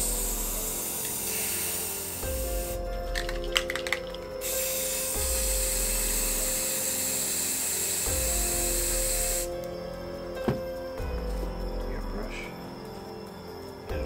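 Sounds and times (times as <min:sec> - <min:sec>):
spray can hissing: 0:00.0 - 0:09.6
can knocking on table: 0:10.4 - 0:10.7.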